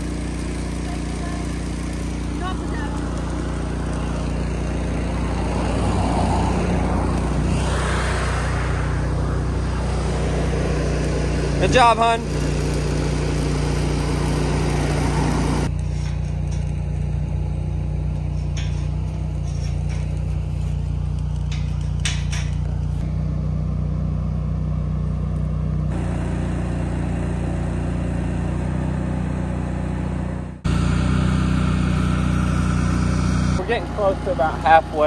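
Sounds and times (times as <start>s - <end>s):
welder generator engine hum: 0.0s - 35.0s.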